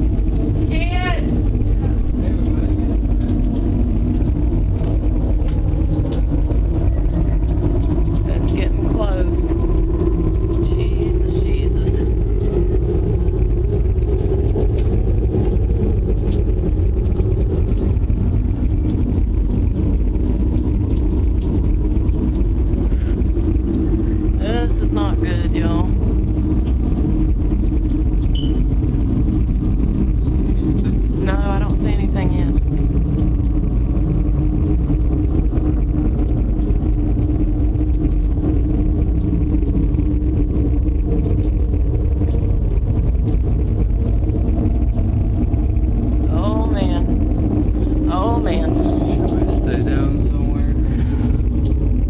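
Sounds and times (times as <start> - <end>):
low rumble: 0.0 - 52.0.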